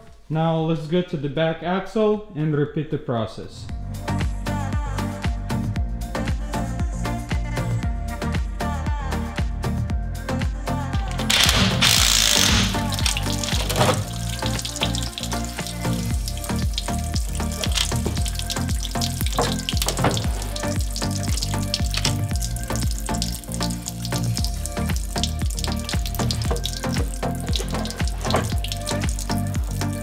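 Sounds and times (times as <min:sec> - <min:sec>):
background music: 0:03.4 - 0:30.0
oil trickling: 0:11.3 - 0:30.0.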